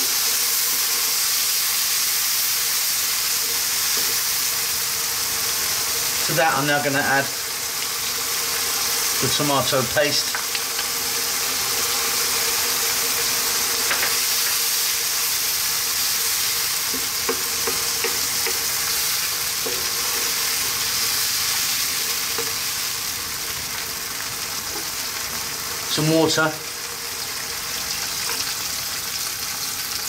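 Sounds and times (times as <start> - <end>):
sauce sizzling in a wok: 0.0 - 30.0
spatula stirring: 16.9 - 21.6.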